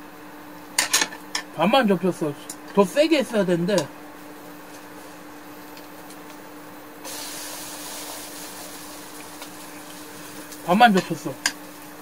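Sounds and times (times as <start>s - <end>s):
steady low hum: 0.0s - 12.0s
pancake sizzling in a frying pan: 7.0s - 12.0s.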